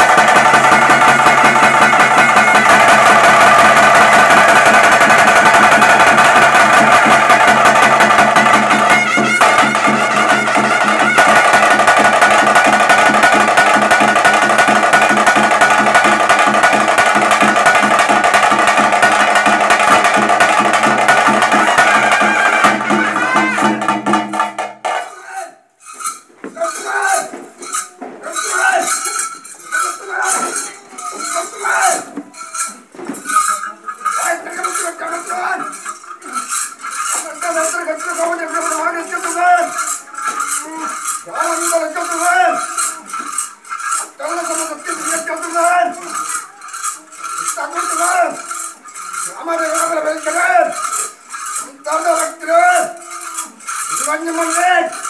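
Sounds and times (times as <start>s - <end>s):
people's voices: 0.0s - 24.1s, 26.5s - 55.0s
drums and wind instrument band: 0.0s - 25.2s, 25.9s - 55.0s
scattered clinks: 25.8s - 55.0s.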